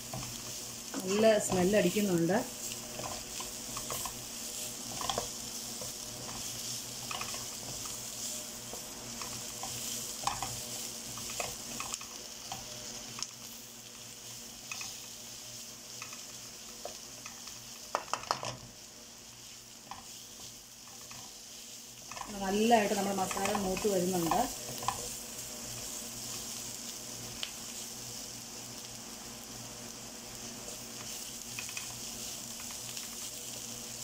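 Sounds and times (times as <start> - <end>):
masala sizzling in oil: 0.0 - 34.0
spatula tapping pan: 4.9 - 8.0, 8.7 - 13.3, 16.0 - 18.6, 23.0 - 25.1, 31.0 - 32.0.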